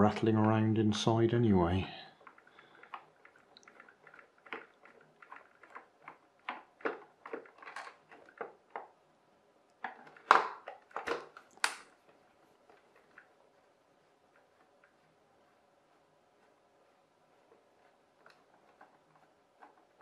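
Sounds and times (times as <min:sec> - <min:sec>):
plastic knocks: 0:09.8 - 0:11.4.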